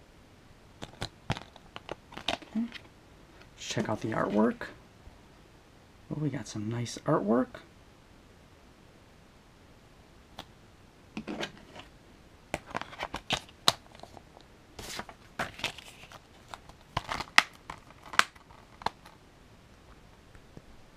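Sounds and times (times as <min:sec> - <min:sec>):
plastic case rustling: 0:00.8 - 0:02.9, 0:11.2 - 0:11.9, 0:12.6 - 0:19.2.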